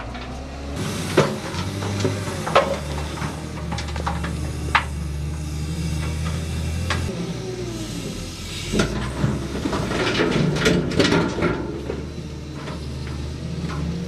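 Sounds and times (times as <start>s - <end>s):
dirt and stones clattering into truck: 0.0s - 5.0s, 8.8s - 14.0s
diesel engine running: 0.0s - 14.0s.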